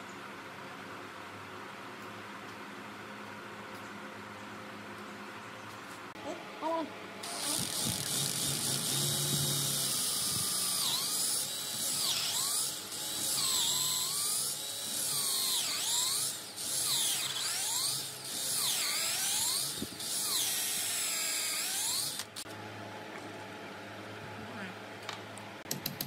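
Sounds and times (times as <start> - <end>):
cordless drill boring wood: 7.2 - 22.4.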